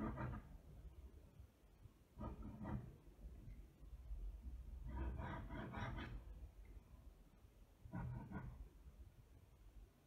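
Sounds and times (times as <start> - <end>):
pen scratching on paper: 0.0 - 0.6, 2.2 - 3.0, 4.8 - 6.3, 7.9 - 8.7.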